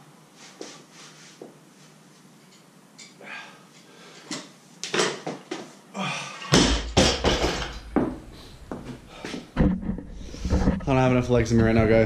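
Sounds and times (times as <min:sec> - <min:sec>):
barbell crashing to the floor: 0:06.5 - 0:08.2
barbell knocking as it settles: 0:06.5 - 0:08.2
person breathing hard and straining: 0:08.3 - 0:10.7.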